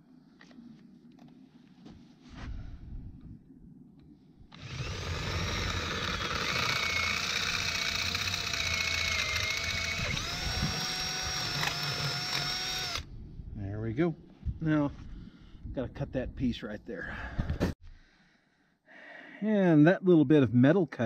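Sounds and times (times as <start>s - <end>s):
cordless drill whining: 4.5s - 13.1s.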